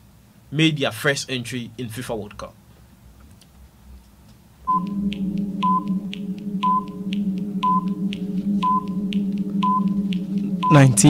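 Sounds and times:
low hum: 0:04.6 - 0:11.0
short beeps: 0:04.7 - 0:11.0
timer ticks: 0:04.7 - 0:11.0.

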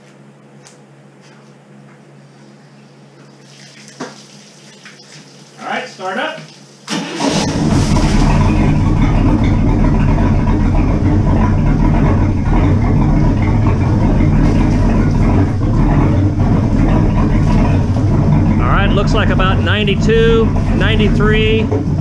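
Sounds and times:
boat engine idling: 0:07.0 - 0:22.0.

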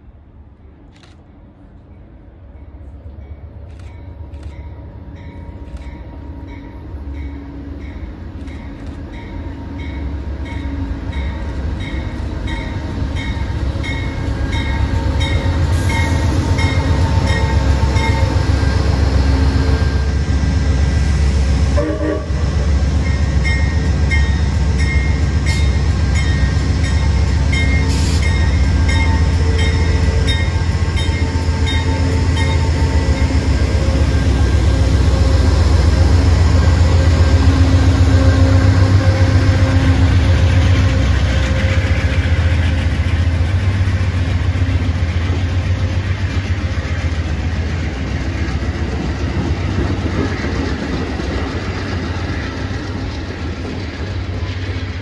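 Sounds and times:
diesel train engine and wheel rumble: 0:00.0 - 0:55.0
locomotive bell ringing: 0:02.6 - 0:18.9, 0:23.0 - 0:34.6.

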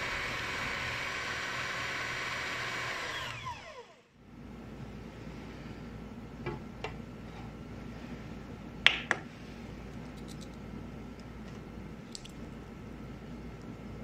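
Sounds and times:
steady low hum: 0:03.4 - 0:14.0.

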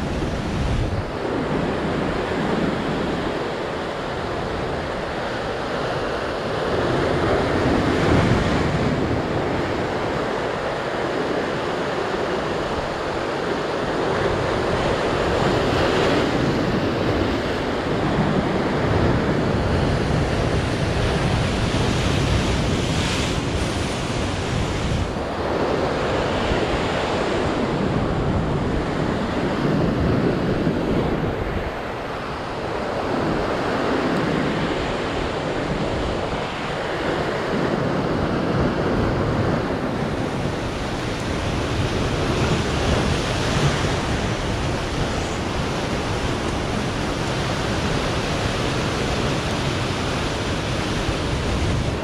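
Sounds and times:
wind buffeting microphone: 0:00.0 - 0:52.0
surf breaking on rocks: 0:40.0 - 0:52.0.

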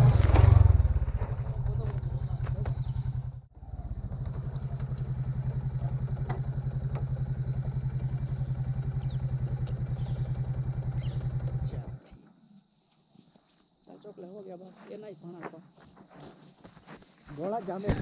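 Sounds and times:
vehicle engine idling: 0:00.0 - 0:12.2.

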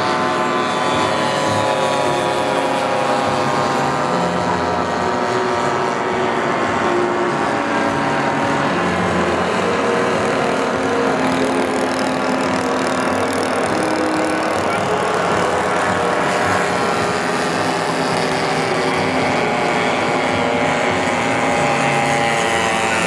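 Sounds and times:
model aeroplane engines droning: 0:00.0 - 0:23.0.

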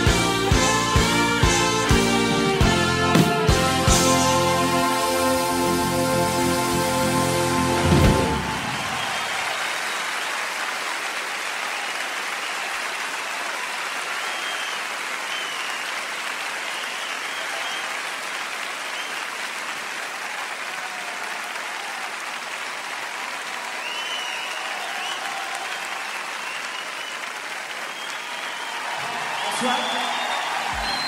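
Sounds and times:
crowd applauding and cheering: 0:00.0 - 0:31.0
audience shouts: 0:08.2 - 0:10.7, 0:20.1 - 0:31.0.

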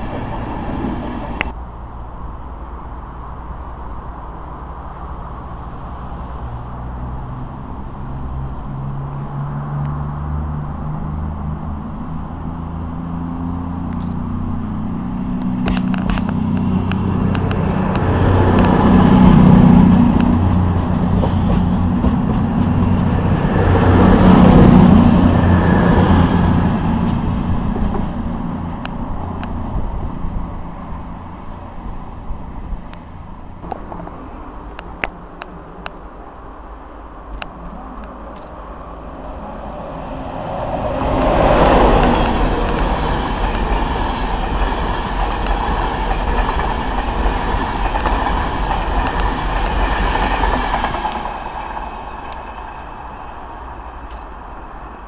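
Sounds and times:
diesel train engines passing: 0:00.0 - 0:55.0
express train arriving at speed: 0:00.0 - 0:55.0
wheels rushing on rail: 0:00.0 - 0:55.0.

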